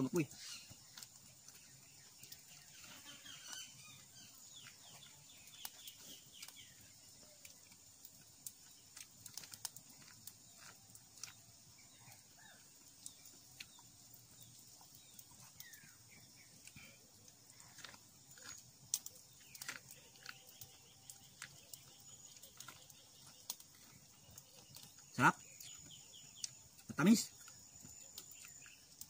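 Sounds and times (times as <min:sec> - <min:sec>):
chewing corn on the cob: 0:00.1 - 0:29.0.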